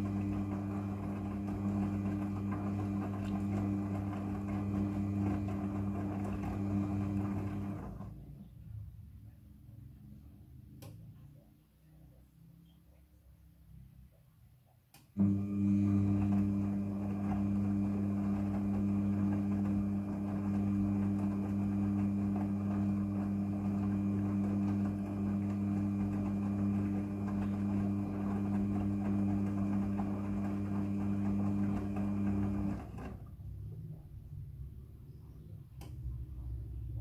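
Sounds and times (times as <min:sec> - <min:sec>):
washing machine motor humming: 0:00.0 - 0:08.2, 0:15.1 - 0:34.0.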